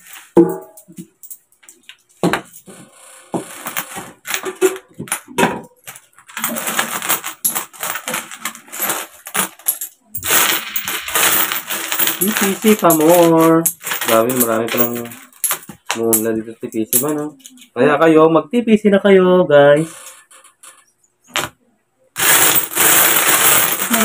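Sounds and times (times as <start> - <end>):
metal coins clinking: 5.7 - 17.7, 19.8 - 21.5, 22.2 - 24.0.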